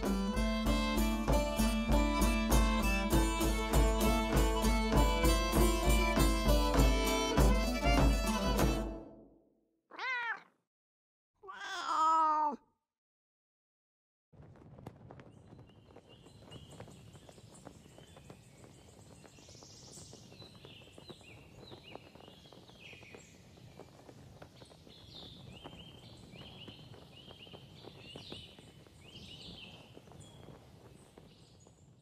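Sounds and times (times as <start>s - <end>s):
songbirds chirping: 15.4s - 32.0s.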